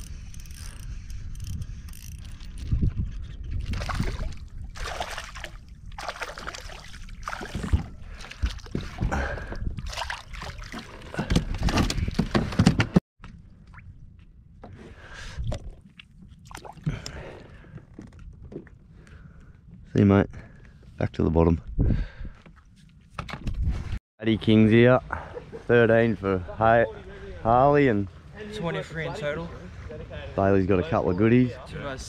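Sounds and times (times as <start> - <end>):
fish splashing and thrashing: 3.6 - 12.2, 15.4 - 17.3.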